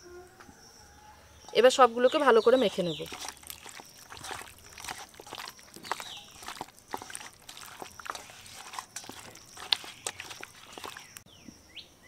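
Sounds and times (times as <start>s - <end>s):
wet squelches of marinated meat: 2.5s - 11.2s.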